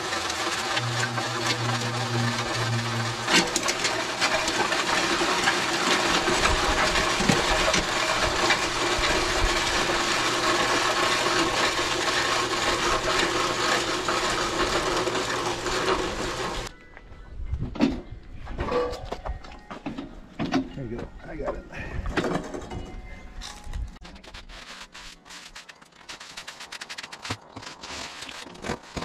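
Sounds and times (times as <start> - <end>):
concrete mix churning rattle: 0.0 - 16.7, 24.0 - 29.0
low motor hum: 0.0 - 16.7.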